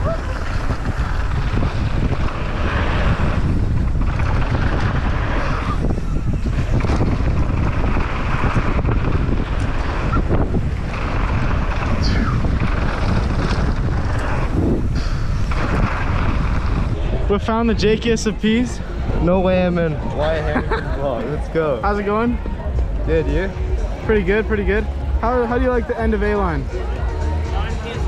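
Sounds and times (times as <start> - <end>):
bike tyres on dirt: 0.0 - 17.3
wind buffeting microphone: 0.0 - 28.0.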